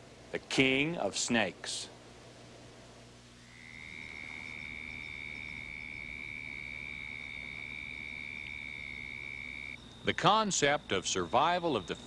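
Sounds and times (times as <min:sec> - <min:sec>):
steady high-pitched tone: 0:03.4 - 0:12.0.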